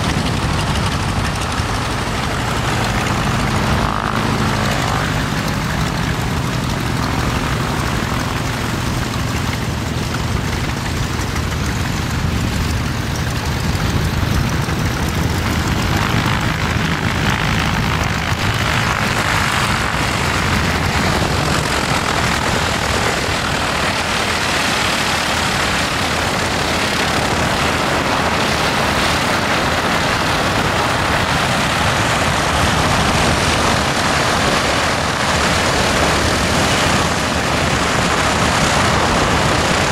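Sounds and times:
broad rushing noise: 0.0s - 39.9s
propeller plane engines droning: 0.0s - 39.9s.

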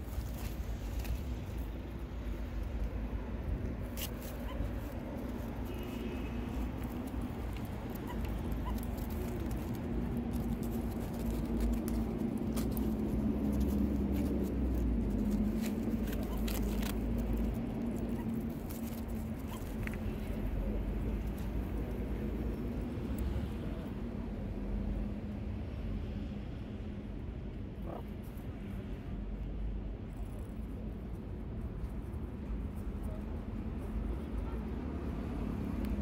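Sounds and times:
animal scratching and snuffling dirt: 0.0s - 22.8s.

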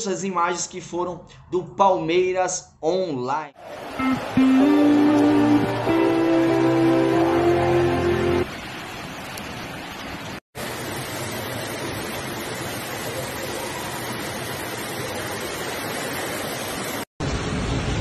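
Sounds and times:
rushing floodwater: 3.6s - 10.4s
heavy rain: 3.6s - 18.0s
guitar music: 4.0s - 8.5s.

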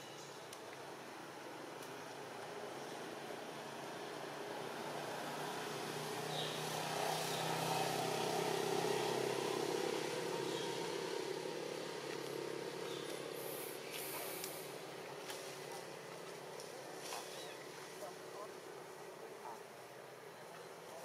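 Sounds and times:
distant engine droning: 0.8s - 21.0s.

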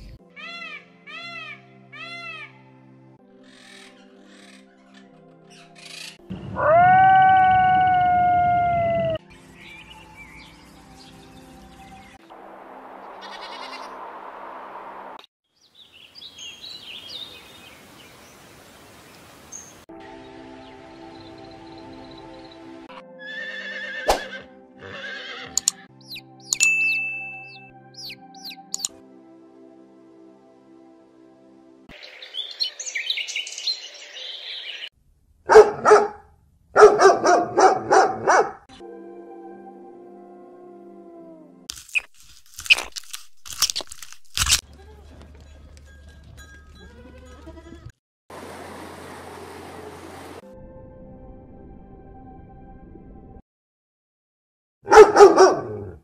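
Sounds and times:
birds chirping: 15.6s - 22.8s, 26.0s - 28.9s, 31.9s - 34.9s
dog barking: 35.5s - 38.7s, 54.8s - 56.0s.

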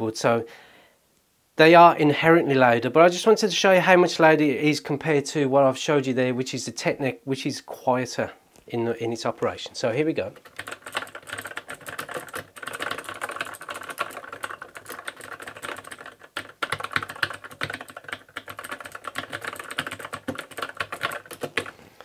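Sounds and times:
fast mechanical keyboard typing: 10.2s - 21.8s.

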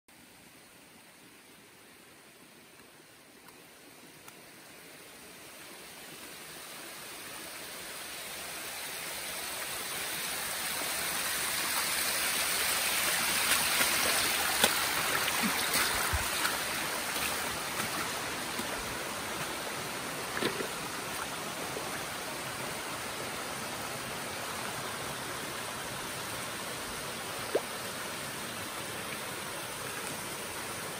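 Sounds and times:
water rushing over rock: 10.2s - 23.1s.

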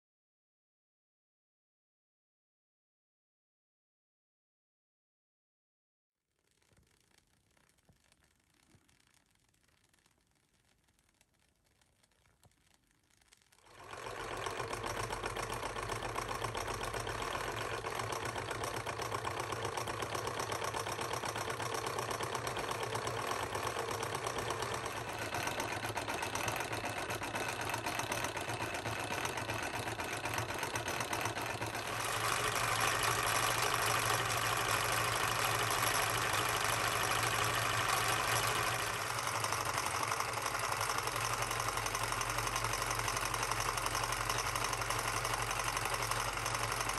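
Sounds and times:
toy engine mechanical clatter: 13.6s - 46.9s.

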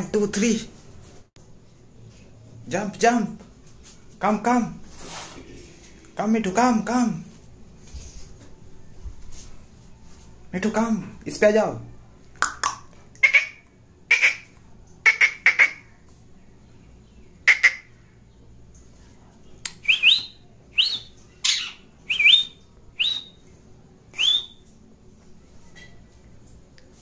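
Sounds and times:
parakeet squawking: 13.2s - 15.9s, 17.4s - 18.0s, 21.4s - 22.4s.

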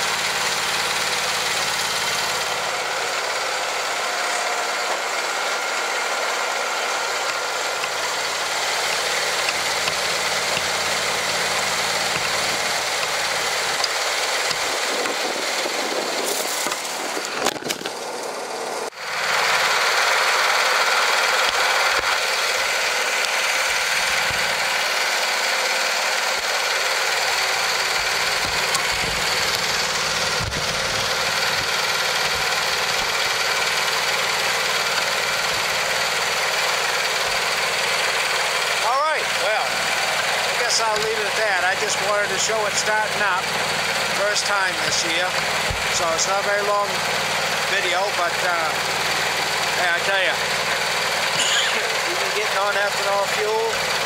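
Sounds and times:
lawn tractor engine idling: 0.0s - 54.0s
wind noise on microphone: 14.6s - 17.5s, 30.4s - 31.0s.

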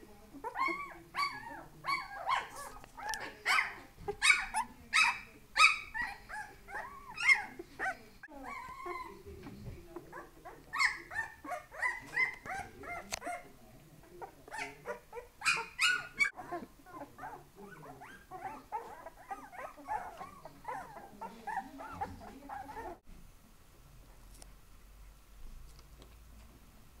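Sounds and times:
puppies whining and yelping: 0.4s - 9.2s, 10.1s - 13.5s, 14.5s - 23.0s.

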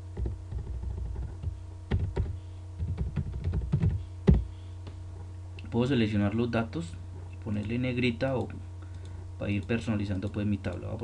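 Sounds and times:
steady low hum: 0.0s - 11.0s
keyboard keys clicking: 0.2s - 4.4s.

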